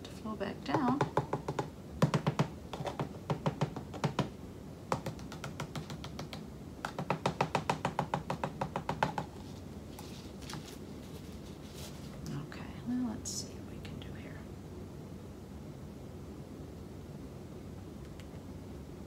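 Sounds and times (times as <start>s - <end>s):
tapping on plastic cup: 4.9s - 9.3s.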